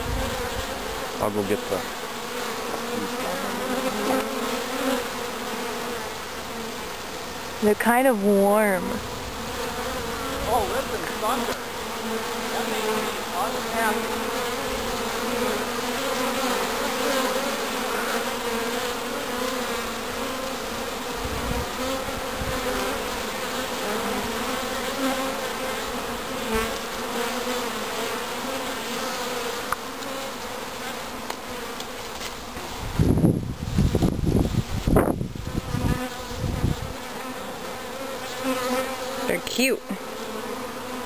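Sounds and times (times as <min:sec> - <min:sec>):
bee swarm buzzing: 0:00.0 - 0:41.0.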